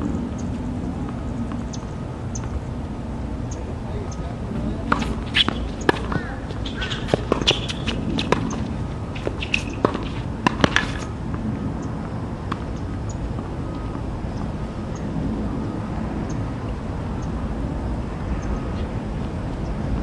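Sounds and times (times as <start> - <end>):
low background rumble: 0.0 - 20.0
tennis balls struck and bouncing: 4.6 - 14.6.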